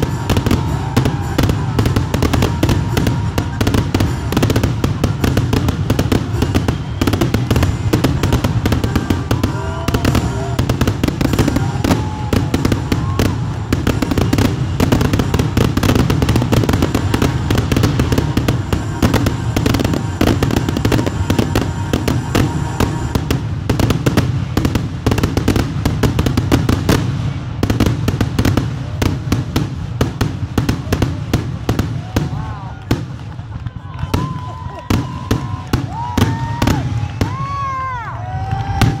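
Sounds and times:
fireworks bursting and crackling: 0.0s - 39.0s.

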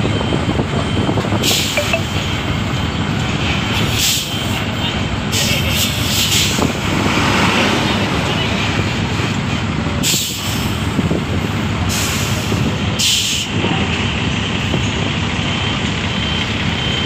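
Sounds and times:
bus diesel engine passing: 0.0s - 17.0s
air brake hiss: 10.0s - 10.8s, 11.9s - 13.6s.

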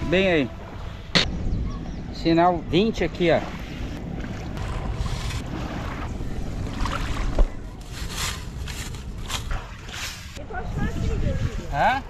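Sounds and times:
wind on microphone: 10.3s - 12.0s.

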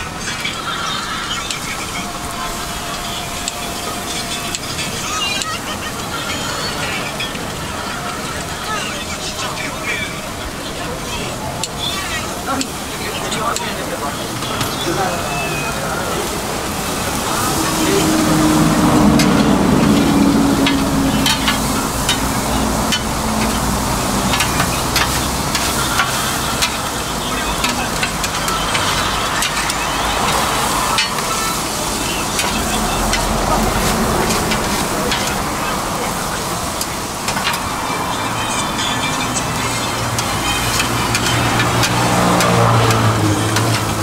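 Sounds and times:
food sizzling on a griddle: 0.2s - 44.0s.

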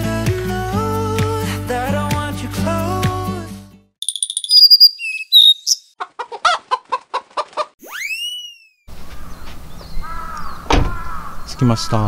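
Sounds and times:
high electronic chirps: 4.0s - 5.9s
whistle-like swoop: 4.0s - 5.9s, 7.8s - 8.9s
chicken clucks: 5.9s - 7.8s.

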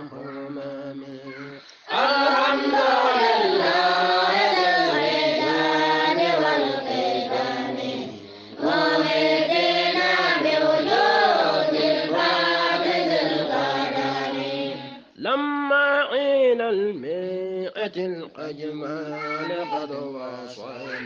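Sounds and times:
group of voices chanting: 0.0s - 15.0s.

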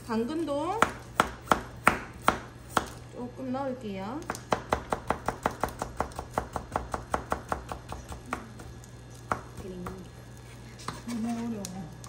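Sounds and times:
knife chopping carrots on board: 0.8s - 3.0s, 4.3s - 10.1s.

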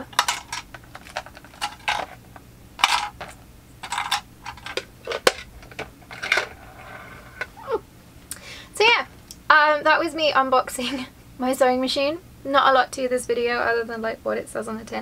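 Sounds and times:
plastic clicks and clatter: 0.0s - 2.2s, 2.8s - 6.6s.

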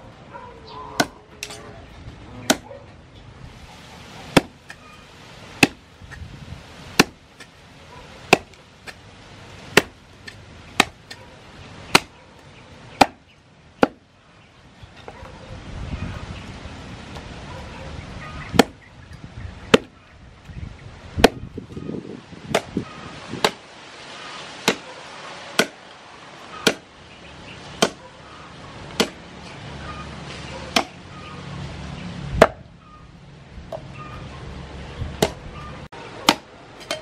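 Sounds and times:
cleaver chopping on wooden block: 1.0s - 1.6s, 2.5s - 2.7s, 4.3s - 4.8s, 5.6s - 6.2s, 7.0s - 7.5s, 8.3s - 9.0s, 9.7s - 11.2s, 11.9s - 12.2s, 13.0s - 13.2s, 13.8s - 14.0s, 18.6s - 18.8s, 19.7s - 20.0s, 21.2s - 21.5s, 22.5s - 22.8s, 23.4s - 23.6s, 24.6s - 24.8s, 25.6s - 25.8s, 26.6s - 26.9s, 27.8s - 28.0s, 28.9s - 29.2s, 30.7s - 31.0s, 32.4s - 32.6s, 35.2s - 35.4s.

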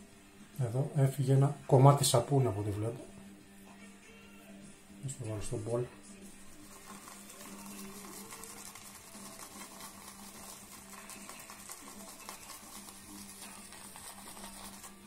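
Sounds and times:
shaving brush swishing lather: 6.4s - 15.0s.

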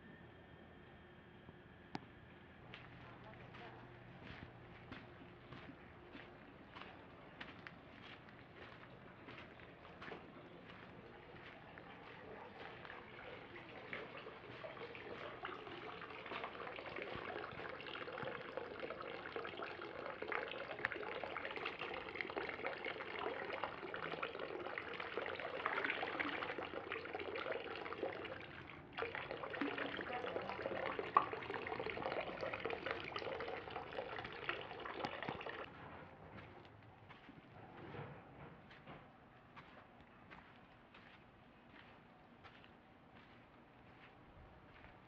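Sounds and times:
water trickling into basin: 10.6s - 35.7s.

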